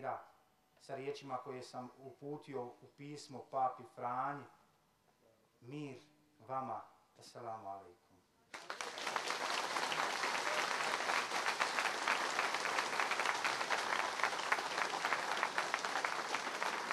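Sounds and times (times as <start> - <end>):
audience applauding: 8.5 - 16.9.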